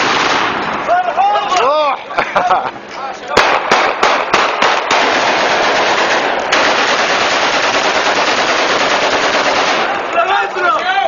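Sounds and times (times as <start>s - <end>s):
rifle shots: 0.0s - 0.9s, 3.4s - 10.2s.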